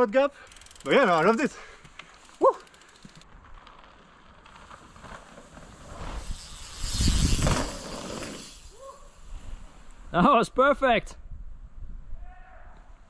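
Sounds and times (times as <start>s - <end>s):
bicycle freewheel ticking: 0.4s - 3.3s, 6.1s - 8.8s
bike tyres skidding over dirt: 0.5s - 10.1s.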